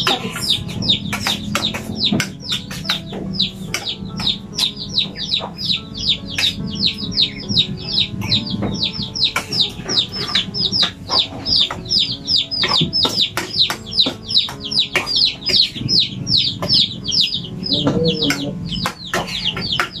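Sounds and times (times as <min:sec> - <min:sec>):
chicks peeping: 0:00.0 - 0:20.0.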